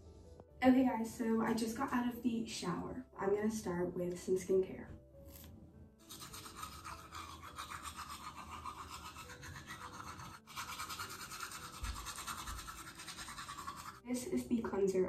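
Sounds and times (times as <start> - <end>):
toothbrush scrubbing teeth: 5.3 - 14.0.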